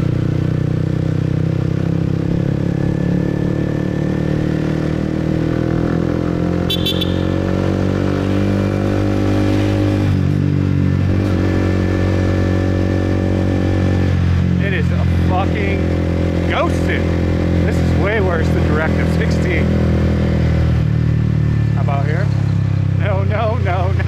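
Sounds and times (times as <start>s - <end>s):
motorbike engine running: 0.0s - 24.0s
brief high beep: 6.7s - 7.3s.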